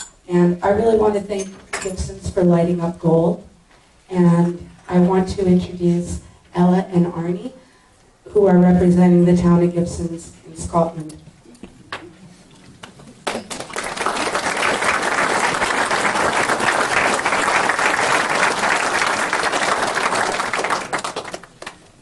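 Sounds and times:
audience applauding: 12.8 - 22.0.

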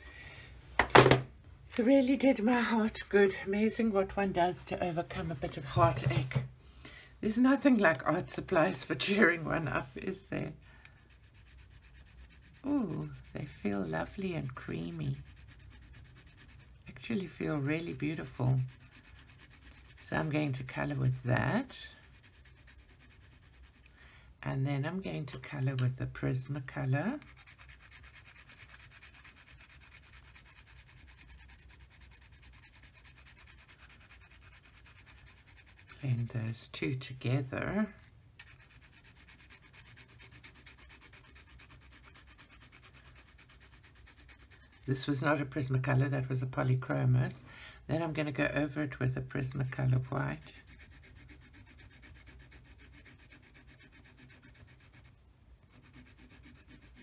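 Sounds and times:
pencil scratching on paper: 8.0 - 23.9, 25.5 - 45.7, 48.1 - 57.0.

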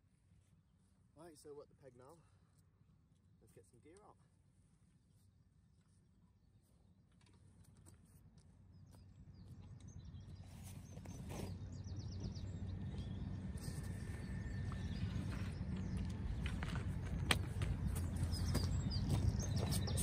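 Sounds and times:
wind rumbling on microphone: 9.2 - 20.0
footsteps on gravel: 14.1 - 20.0.

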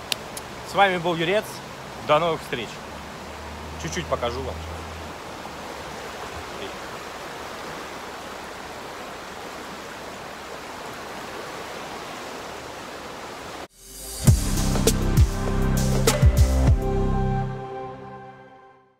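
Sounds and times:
fast-flowing stream rushing: 0.0 - 13.7
outro music: 13.7 - 18.9.

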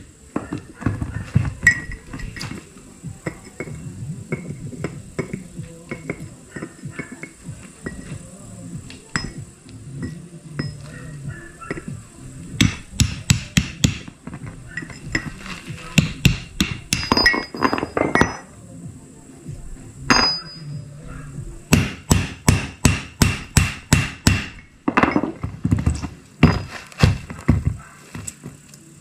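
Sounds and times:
hammer blows on metal: 21.7 - 24.7.

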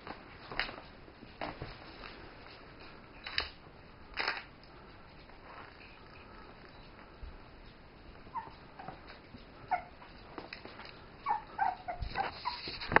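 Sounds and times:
puppies whimpering: 8.2 - 10.2, 11.2 - 12.9.

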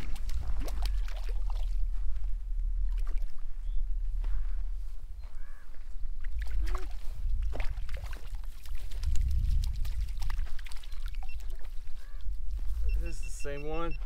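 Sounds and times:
water flowing and splashing: 0.0 - 3.6, 6.0 - 12.9
low rumble: 0.0 - 7.8, 8.9 - 11.3.

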